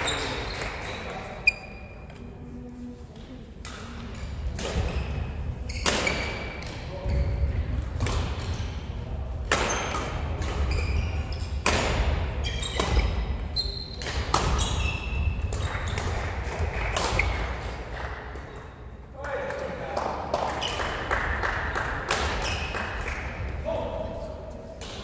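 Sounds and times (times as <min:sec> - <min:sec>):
shoes squeaking on court floor: 0:00.0 - 0:02.5, 0:04.2 - 0:07.6, 0:09.7 - 0:16.1, 0:22.2 - 0:22.9
rackets hitting shuttlecocks: 0:03.6 - 0:05.0, 0:05.8 - 0:06.9, 0:07.9 - 0:08.7, 0:09.4 - 0:13.3, 0:13.9 - 0:18.6, 0:21.8 - 0:23.7, 0:24.5 - 0:25.0.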